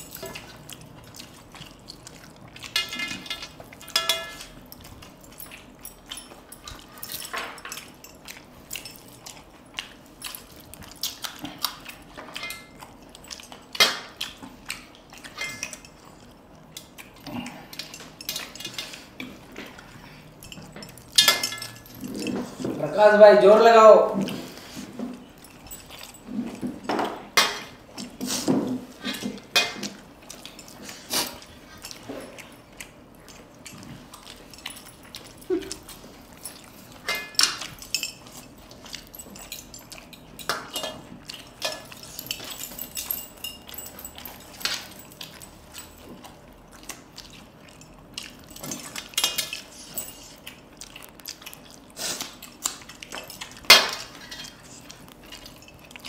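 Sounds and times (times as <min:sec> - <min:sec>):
chewing and mouth noises: 0:00.0 - 0:56.0
fingers clinking on metal plates: 0:02.6 - 0:09.2, 0:20.4 - 0:22.7, 0:33.6 - 0:46.3.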